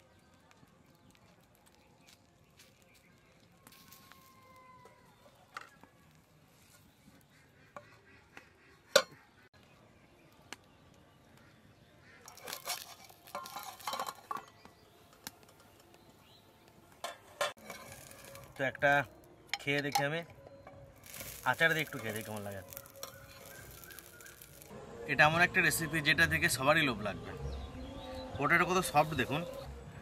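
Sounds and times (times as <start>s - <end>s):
metal clattering: 12.3s - 14.6s
metal lid clanking: 12.3s - 14.6s, 17.0s - 18.5s.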